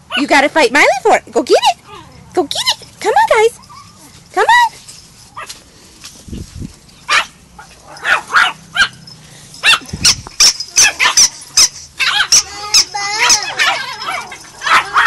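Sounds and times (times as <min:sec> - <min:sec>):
dogs yelping: 0:01.8 - 0:04.4, 0:07.1 - 0:15.0
small dogs yapping: 0:03.4 - 0:04.3, 0:07.1 - 0:15.0.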